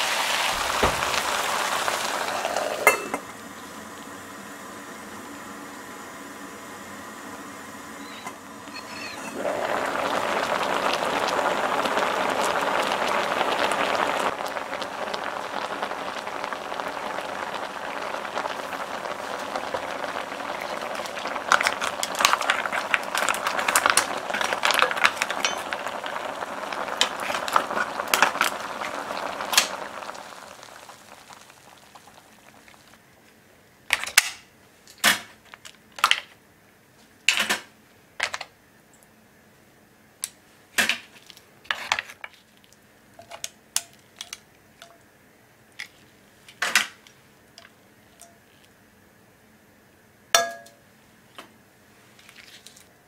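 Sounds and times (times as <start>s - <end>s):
pot boiling hard: 0.0s - 33.2s, 50.4s - 50.8s.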